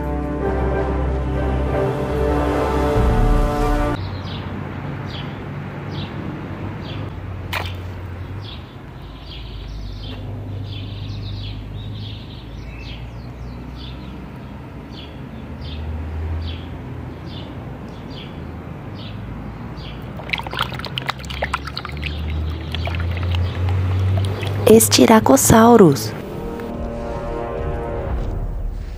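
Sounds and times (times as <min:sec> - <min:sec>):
low hum: 0:00.0 - 0:04.0, 0:26.1 - 0:28.9
water splashing in plastic tub: 0:07.5 - 0:07.8, 0:20.0 - 0:24.7.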